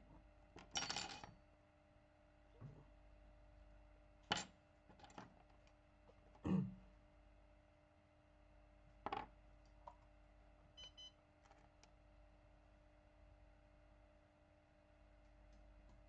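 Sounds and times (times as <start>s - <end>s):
faint steady hum: 0.0s - 16.0s
short faint beeps: 10.8s - 11.2s.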